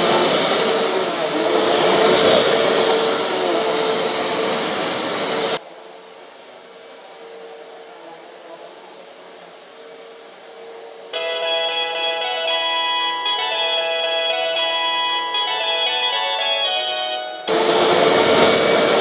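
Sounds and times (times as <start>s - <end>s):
vacuum cleaner running on carpet: 0.0s - 11.8s, 17.4s - 19.0s.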